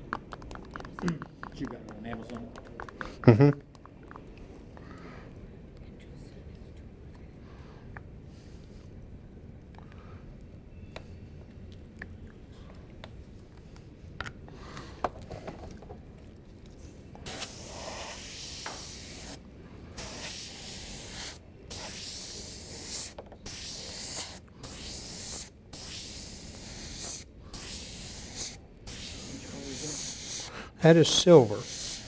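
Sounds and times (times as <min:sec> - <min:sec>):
airbrush spraying hiss: 0:17.2 - 0:32.0.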